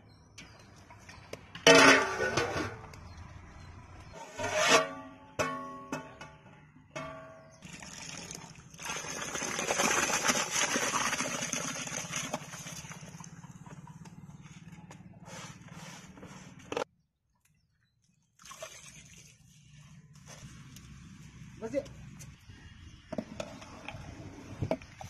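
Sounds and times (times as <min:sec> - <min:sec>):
water boiling and bubbling: 0:07.6 - 0:13.3
rice pouring into water: 0:07.7 - 0:12.4.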